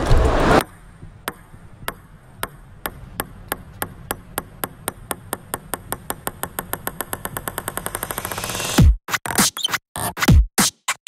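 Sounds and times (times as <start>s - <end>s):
table tennis ball bouncing: 1.2s - 8.8s.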